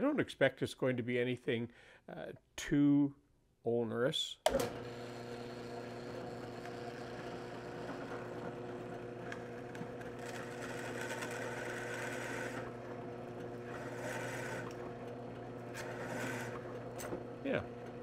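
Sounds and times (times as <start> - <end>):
drill press motor hum: 4.5 - 18.0
drill bit cutting plastic: 4.6 - 17.3.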